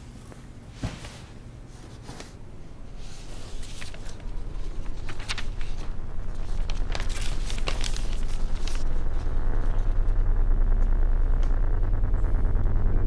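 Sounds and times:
paper and cardboard rustling: 0:00.8 - 0:08.9
low rumble: 0:03.4 - 0:13.0.

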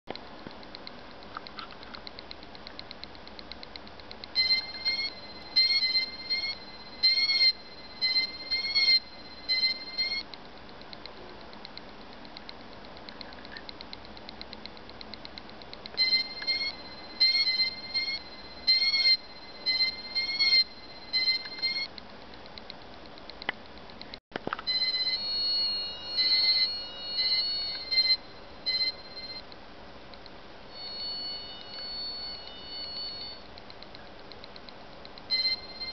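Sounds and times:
faint fast ticking: 0:00.1 - 0:24.2
multi-tone buzzer beeps: 0:04.4 - 0:10.2, 0:16.0 - 0:21.9, 0:24.7 - 0:29.4, 0:30.7 - 0:33.4, 0:35.3 - 0:35.9
buzzer warbling beeps: 0:24.7 - 0:29.4, 0:30.7 - 0:33.4.

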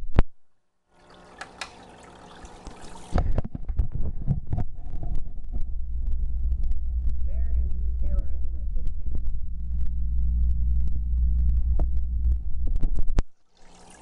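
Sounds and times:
water trickling in aquarium: 0:00.9 - 0:04.6, 0:13.4 - 0:14.0
low rumble: 0:03.2 - 0:13.2.

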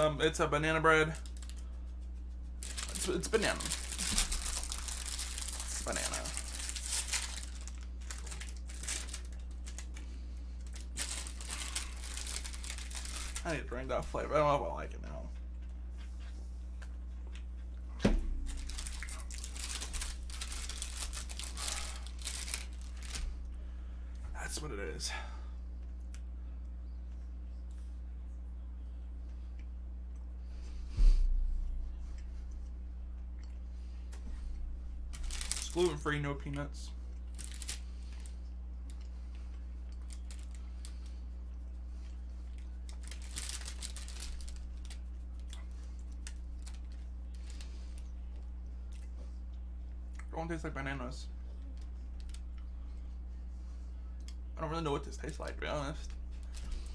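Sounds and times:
low electrical hum: 0:00.0 - 0:56.9
plastic wrapper crinkling: 0:01.1 - 0:01.7, 0:02.5 - 0:14.0, 0:18.4 - 0:23.4, 0:35.1 - 0:36.2, 0:37.3 - 0:41.2, 0:42.5 - 0:48.0, 0:51.6 - 0:52.6.

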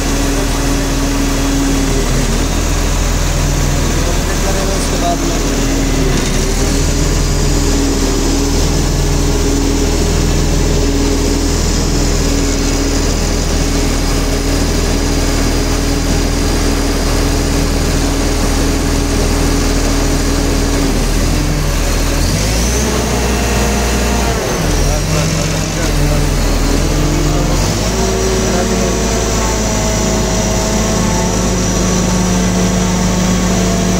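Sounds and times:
diesel engine running: 0:00.0 - 0:33.9
steady whine: 0:00.0 - 0:33.9.

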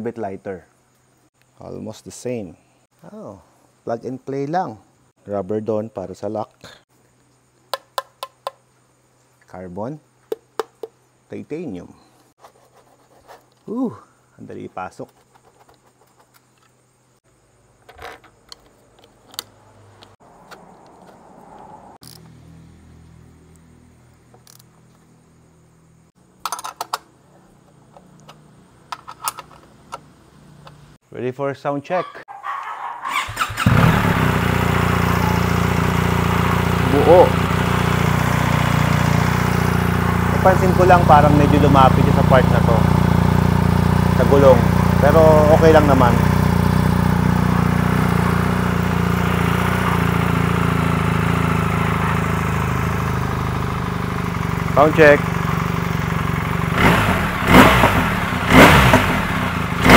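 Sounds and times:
motorcycle engine idling: 0:33.6 - 0:59.9.

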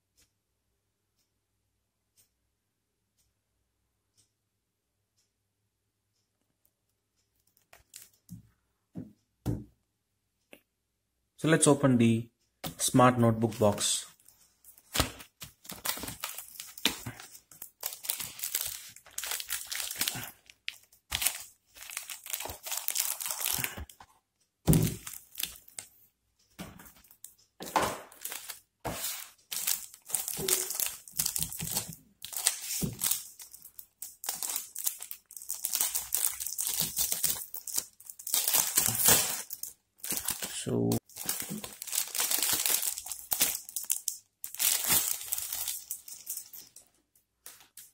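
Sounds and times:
plastic film crinkling: 0:07.6 - 0:08.2, 0:12.8 - 0:24.0, 0:24.8 - 0:25.9, 0:26.8 - 0:47.9.

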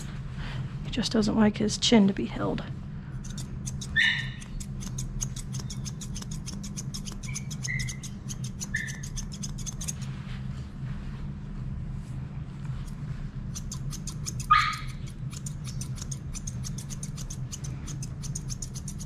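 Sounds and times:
scissors snipping hair: 0:03.2 - 0:10.1, 0:12.8 - 0:19.0.

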